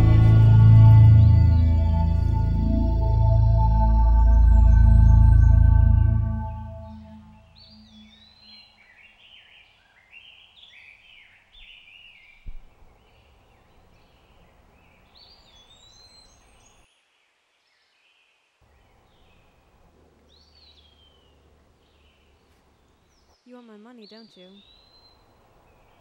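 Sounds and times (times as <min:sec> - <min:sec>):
birds chirping: 0:00.0 - 0:16.8, 0:18.8 - 0:26.0
faint background hiss: 0:07.4 - 0:26.0.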